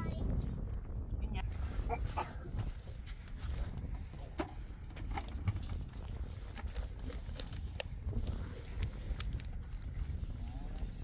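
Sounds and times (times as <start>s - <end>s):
wind rumbling on microphone: 0.0s - 11.0s
camp gear clicks and clinks: 1.9s - 11.0s.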